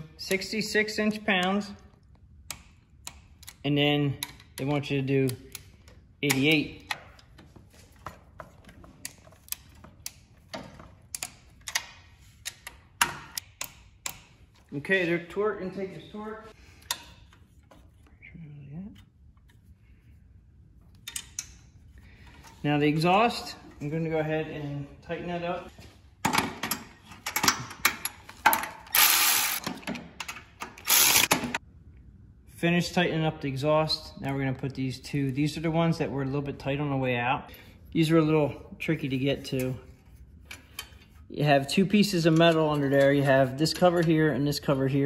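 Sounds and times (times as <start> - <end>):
torque wrench clicking: 28.9 - 29.6, 30.8 - 31.4.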